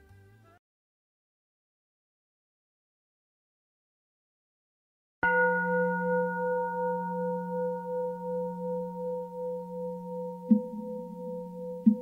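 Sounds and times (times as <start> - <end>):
bowl bell ringing: 5.2 - 12.0.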